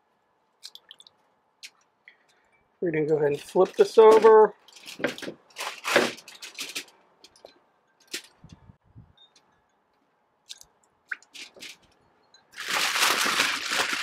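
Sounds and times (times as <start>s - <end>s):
aluminium foil crinkling: 3.4s - 8.4s, 11.2s - 14.0s.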